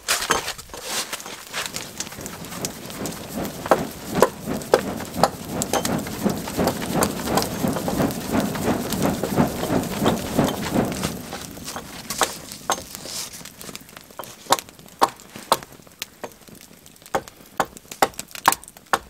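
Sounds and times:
footsteps crunching through snow: 0.0 - 7.9, 9.7 - 14.6.

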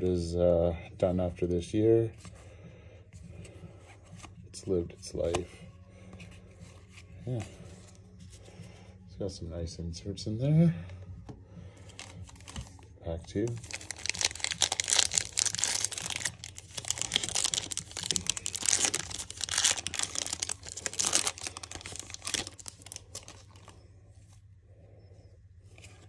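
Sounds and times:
handling of cards: 11.3 - 23.8
foil wrapper tearing and crinkling: 13.5 - 23.7.

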